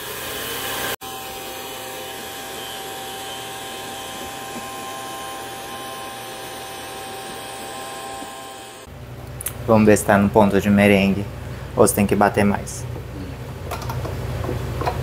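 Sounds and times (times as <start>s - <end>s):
electric stand mixer whining: 0.0s - 8.9s.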